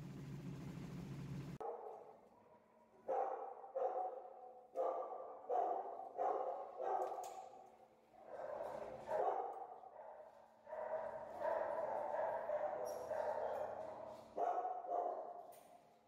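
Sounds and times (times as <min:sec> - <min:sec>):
dogs barking: 0:01.6 - 0:02.2, 0:03.0 - 0:15.5.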